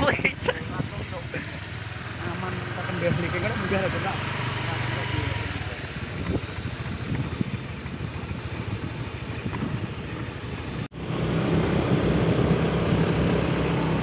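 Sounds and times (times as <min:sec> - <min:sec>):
motorcycle engine running: 0:00.0 - 0:14.0
wind rushing over microphone: 0:05.4 - 0:14.0.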